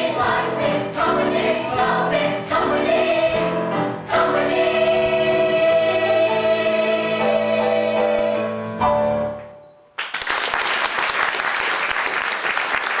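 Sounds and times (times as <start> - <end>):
cast singing with accompaniment: 0.0 - 8.6
audience applause: 10.0 - 13.0.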